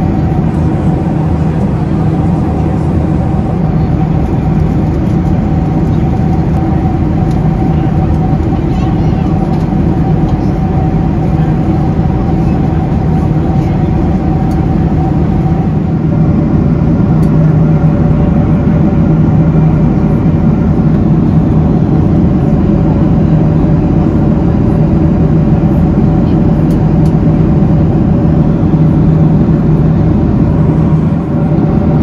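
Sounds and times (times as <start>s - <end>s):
jet engine drone: 0.0s - 32.0s
low steady hums: 0.0s - 32.0s.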